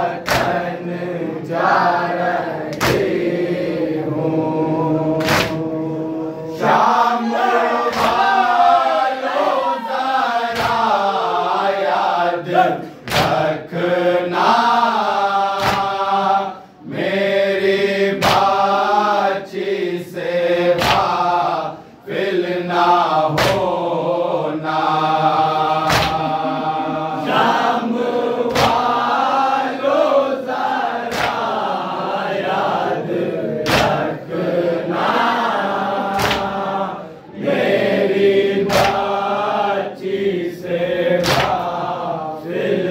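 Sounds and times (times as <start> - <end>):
men chanting in unison: 0.0 - 42.9.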